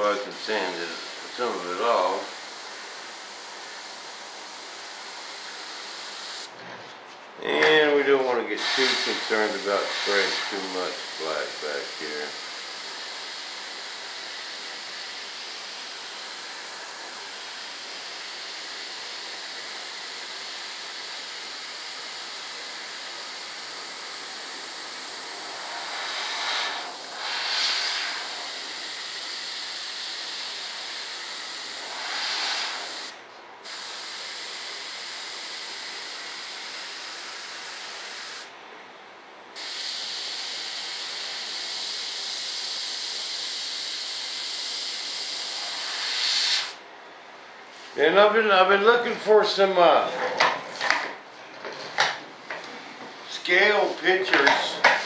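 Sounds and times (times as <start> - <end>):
airbrush hissing: 0.0 - 6.5, 8.6 - 38.5, 39.6 - 46.8.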